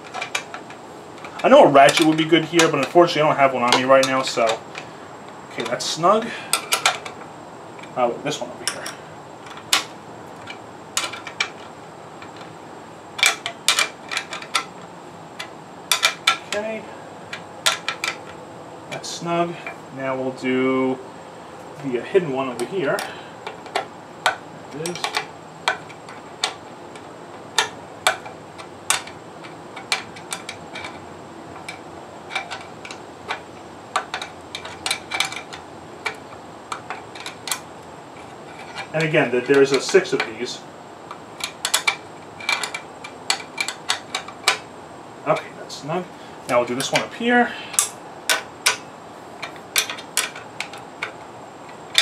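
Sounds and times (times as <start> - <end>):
wrench clicking on nut: 15.4 - 16.6, 23.0 - 26.6
wrench clicking on metal nut: 15.9 - 16.6, 22.6 - 26.6, 41.1 - 44.6, 49.4 - 52.0.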